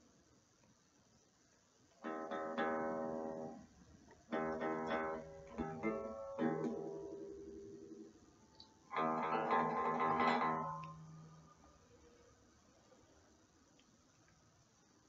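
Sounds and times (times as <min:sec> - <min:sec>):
electric guitar chords strummed: 0:02.0 - 0:03.6, 0:04.3 - 0:11.5.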